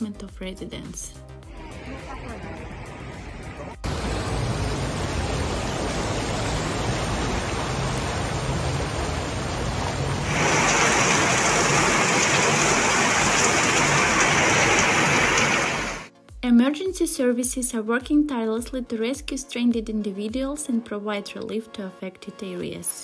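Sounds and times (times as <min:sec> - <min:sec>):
heavy rain and rushing water: 0:01.5 - 0:16.1.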